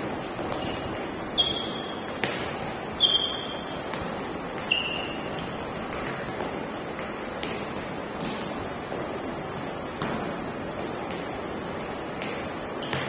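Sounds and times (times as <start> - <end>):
shoes squeaking: 0.0 - 8.5, 12.2 - 13.0
footfalls on gym floor: 0.0 - 13.0.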